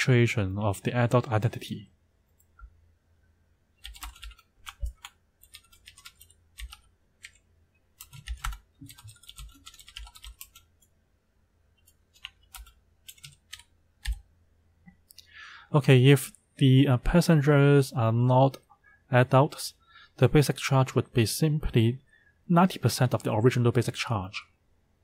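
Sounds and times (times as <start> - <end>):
keyboard typing: 3.8 - 7.4, 8.0 - 10.9, 11.8 - 14.3.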